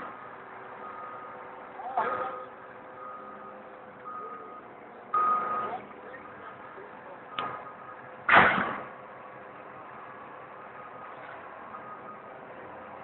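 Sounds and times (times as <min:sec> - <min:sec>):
backup alarm beeping: 0:02.2 - 0:05.8, 0:07.3 - 0:08.1.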